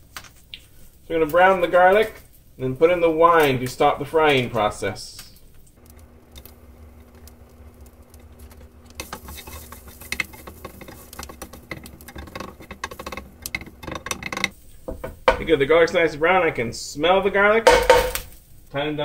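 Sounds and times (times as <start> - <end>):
garlic sizzling in oil: 0.7 - 18.8
spatula clicking and scraping pan: 5.8 - 15.5.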